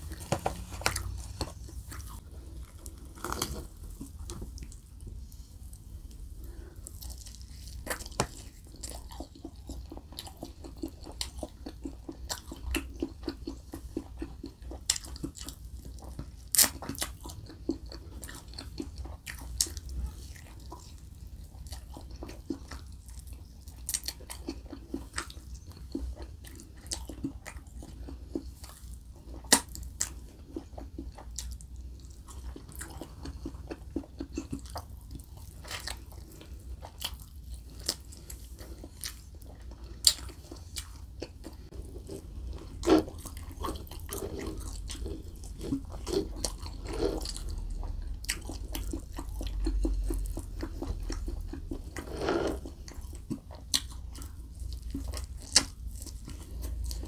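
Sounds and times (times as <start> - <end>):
wet chewing and biting: 0.0 - 57.0.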